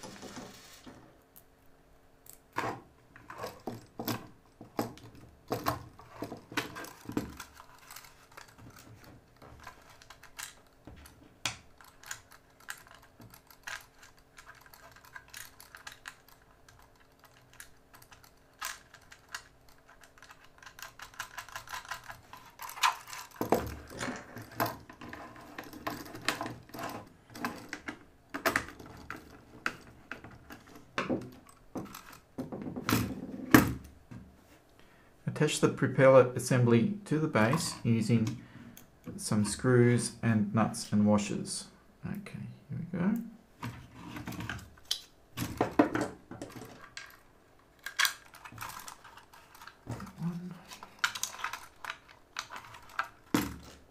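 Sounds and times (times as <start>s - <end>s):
plastic part clattering: 2.6s - 33.8s, 43.6s - 53.9s.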